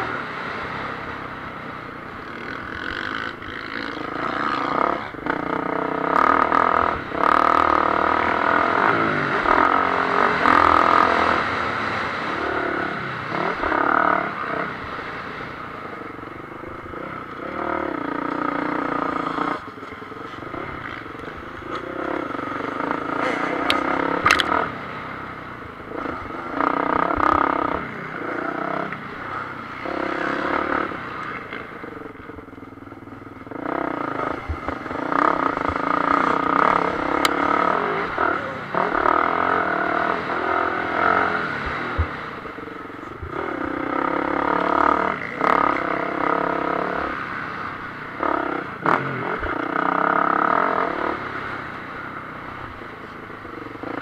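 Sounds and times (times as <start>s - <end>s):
motocross bike engine revving: 2.2s - 54.0s.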